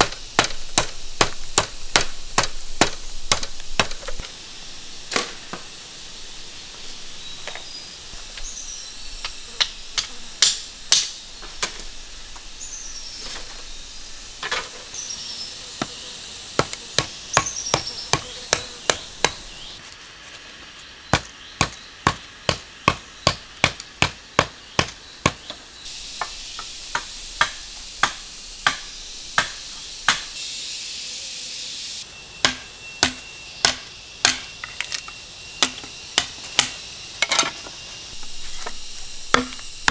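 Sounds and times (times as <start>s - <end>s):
machete chopping bamboo: 0.0s - 4.3s, 9.6s - 11.8s, 16.6s - 19.4s, 21.1s - 25.6s, 26.2s - 30.3s, 32.4s - 35.0s, 35.6s - 37.4s, 38.6s - 39.9s.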